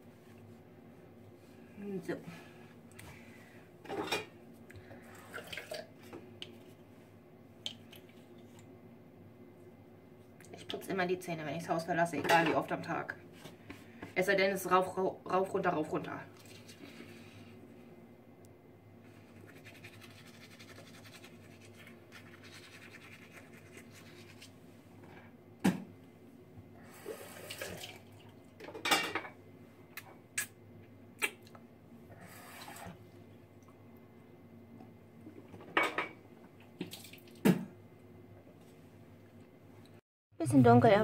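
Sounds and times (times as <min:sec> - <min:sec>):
water splashing in sink: 0:05.2 - 0:05.9, 0:27.3 - 0:28.4, 0:36.8 - 0:37.7
toothbrush scrubbing teeth: 0:19.2 - 0:24.5.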